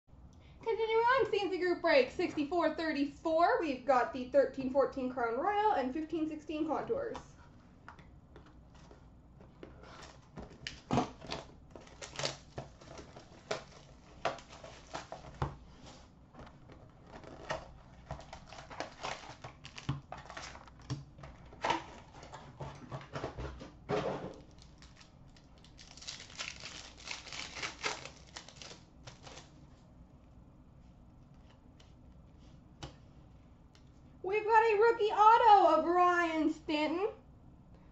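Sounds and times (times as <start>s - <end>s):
plastic wrap crinkling and tearing: 9.9s - 15.8s, 16.8s - 20.9s, 24.4s - 29.6s.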